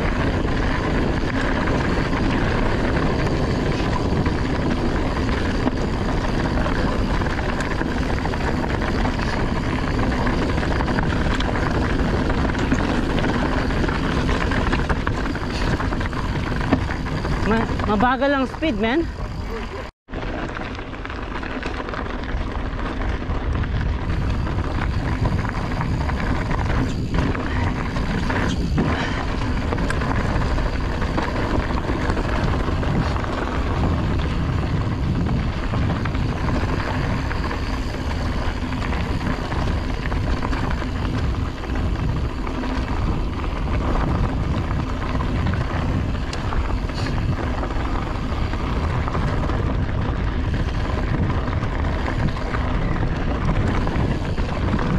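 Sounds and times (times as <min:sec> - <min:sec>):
tyre noise on dirt: 0:00.0 - 0:54.9
wind rumbling over microphone: 0:00.0 - 0:54.9.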